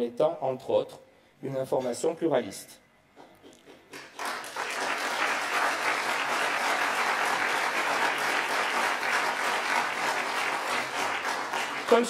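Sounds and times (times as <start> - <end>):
audience applauding: 3.9 - 12.0.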